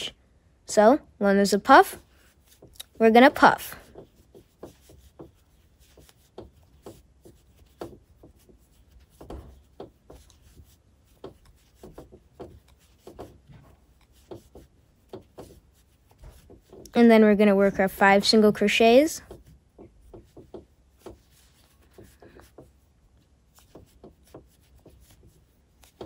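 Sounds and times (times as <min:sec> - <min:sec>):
crochet hook scratching yarn: 0:01.6 - 0:26.0.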